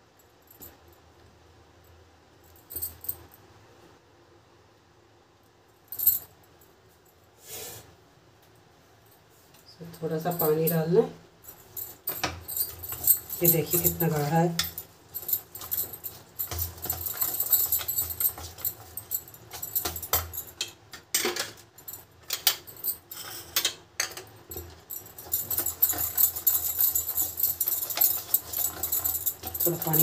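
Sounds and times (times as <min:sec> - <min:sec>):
wire whisk clicking and scraping bowl: 0:15.4 - 0:21.6, 0:23.6 - 0:30.0.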